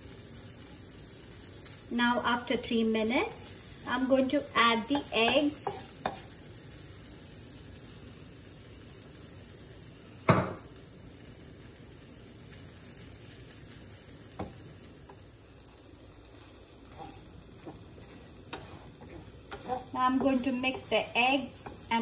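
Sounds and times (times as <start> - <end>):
eggs sizzling in a pan: 0.0 - 22.0
wooden spatula stirring: 4.8 - 6.3, 14.3 - 22.0.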